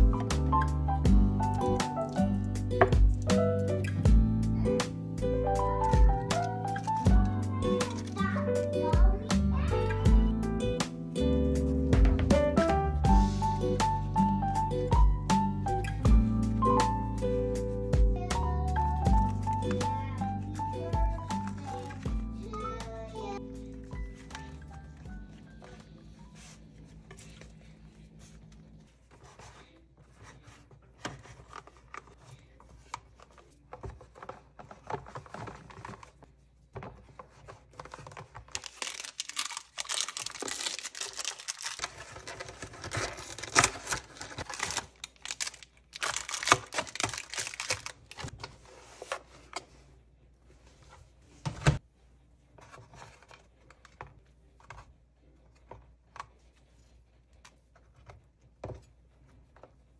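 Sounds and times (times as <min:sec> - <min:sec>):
plastic wrappers crinkling: 0:20.9 - 0:22.1, 0:37.0 - 0:48.4
plastic containers clicking: 0:36.8 - 0:48.3.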